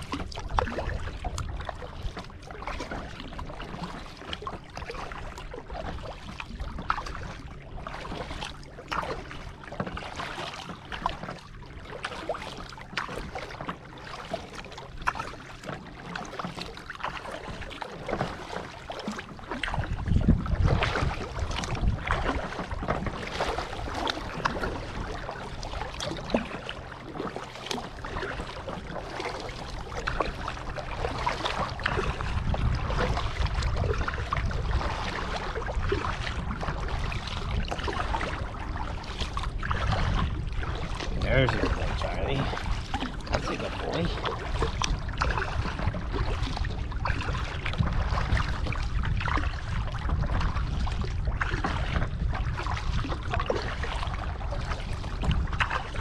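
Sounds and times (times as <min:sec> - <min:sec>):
paddle strokes splashing water: 0:00.0 - 0:56.0
wind buffeting microphone: 0:19.6 - 0:56.0.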